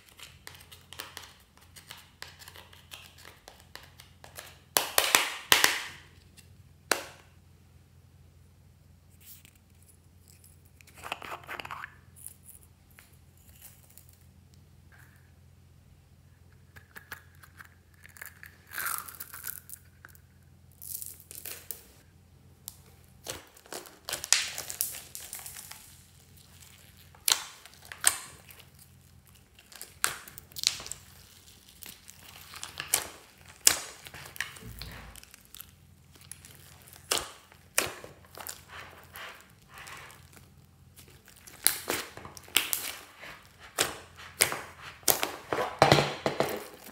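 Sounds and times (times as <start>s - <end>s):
slime crackling and popping: 22.6s - 45.9s.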